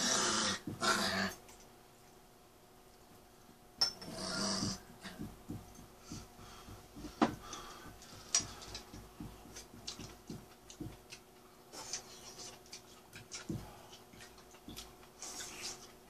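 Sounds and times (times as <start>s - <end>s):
chewing: 8.3s - 16.0s
slurping: 11.7s - 16.0s.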